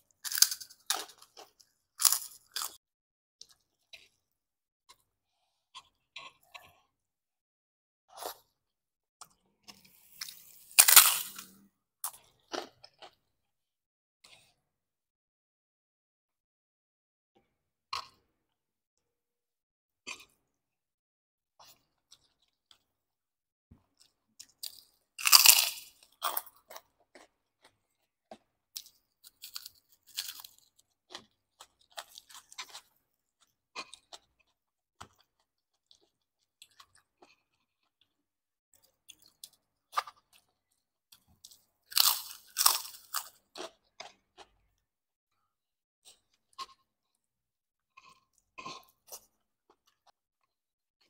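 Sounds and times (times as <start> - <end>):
crunching of crisp cracker: 0.1 - 2.8, 9.2 - 13.2, 24.0 - 38.2, 38.8 - 44.8
soft chewing: 3.4 - 7.1, 9.2 - 13.3, 26.0 - 50.6.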